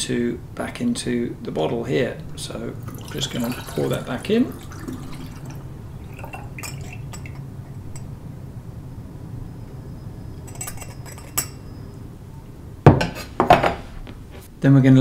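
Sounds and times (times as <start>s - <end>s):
steady low hum: 0.0s - 14.7s
water pouring through funnel: 2.4s - 8.2s
glass and metal clinking: 2.8s - 8.3s, 10.3s - 12.1s.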